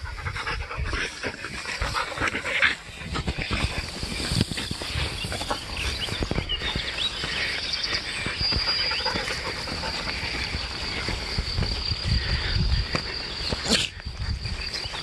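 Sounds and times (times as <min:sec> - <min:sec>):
birds chirping: 0:00.0 - 0:15.0
footsteps through grass: 0:02.8 - 0:12.1.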